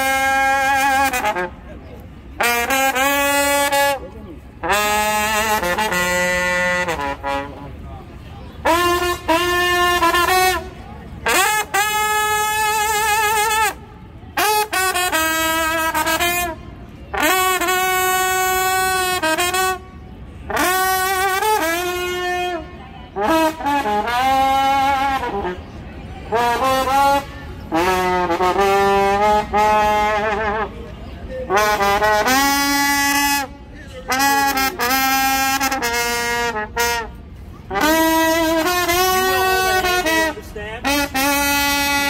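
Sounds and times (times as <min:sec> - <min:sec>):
slide trombone melody: 0:00.0 - 0:01.6, 0:02.4 - 0:04.0, 0:04.6 - 0:07.7, 0:08.6 - 0:13.8, 0:14.4 - 0:19.8, 0:26.3 - 0:30.7, 0:31.5 - 0:33.5, 0:34.1 - 0:42.0.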